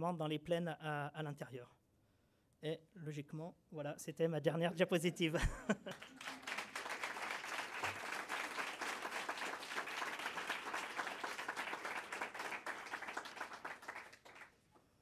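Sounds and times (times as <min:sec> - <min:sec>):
audience applauding: 0:05.9 - 0:14.6.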